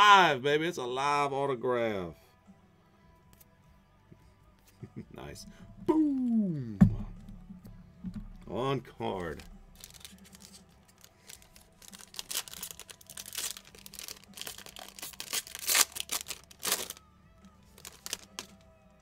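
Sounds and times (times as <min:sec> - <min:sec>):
foil wrapper tearing and crinkling: 0:09.3 - 0:17.0, 0:17.7 - 0:18.6.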